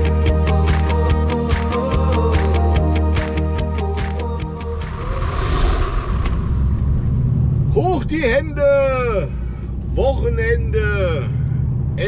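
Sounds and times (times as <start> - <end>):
held low bass: 4.4 - 9.9.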